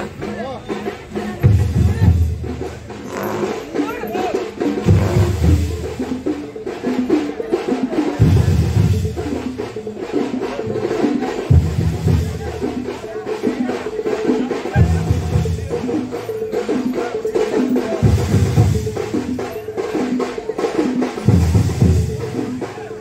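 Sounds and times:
bright percussion knocking: 0.0s - 22.6s
deep drum beat: 0.0s - 23.0s.

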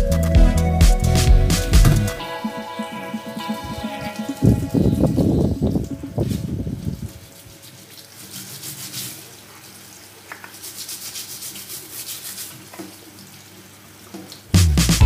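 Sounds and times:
loud music: 0.0s - 6.2s, 14.6s - 15.0s
running tap water: 2.8s - 14.8s
brush scrubbing metal filter: 5.8s - 9.8s, 10.4s - 13.0s.

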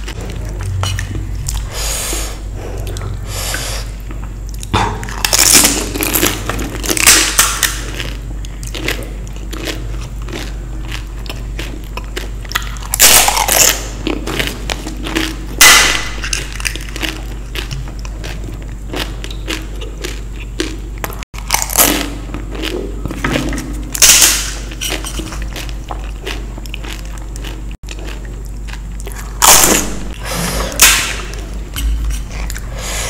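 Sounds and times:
low steady hum: 0.0s - 33.0s
chewing: 2.6s - 15.5s, 16.4s - 23.8s, 24.6s - 29.5s
crunching bites: 4.5s - 31.6s.

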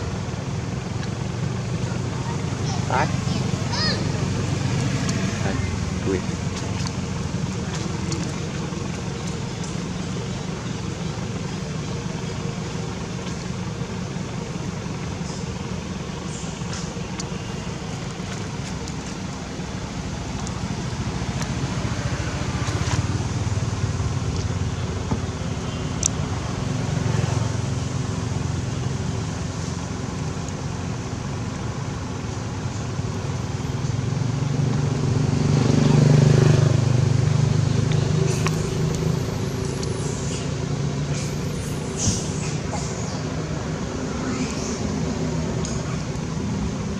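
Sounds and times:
traffic engine hum: 0.0s - 46.9s
vehicle passing close by: 2.2s - 8.7s, 34.1s - 46.9s.

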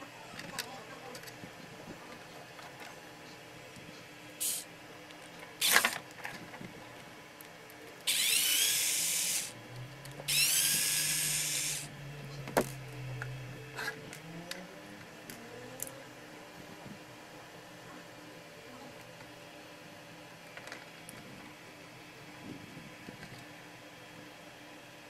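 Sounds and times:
sharp clicks from handling parts: 3.8s - 6.5s
cordless screwdriver running: 4.4s - 4.6s, 5.6s - 5.9s, 8.1s - 9.6s, 10.3s - 11.9s.

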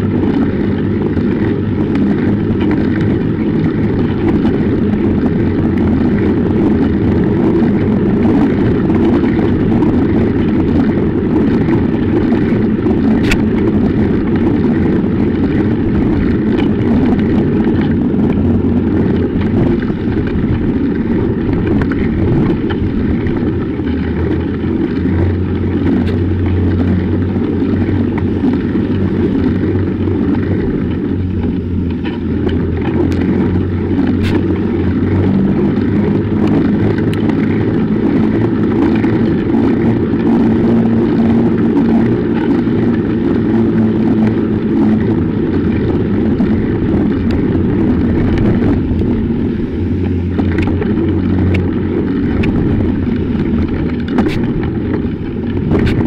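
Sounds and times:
bicycle tyres on snow: 0.0s - 56.0s
wind buffeting microphone: 0.0s - 56.0s.

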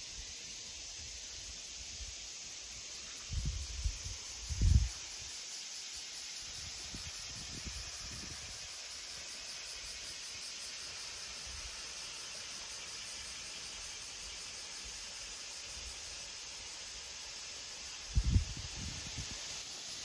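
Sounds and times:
river hiss: 0.0s - 20.0s
wind rumble on microphone: 18.1s - 19.4s.

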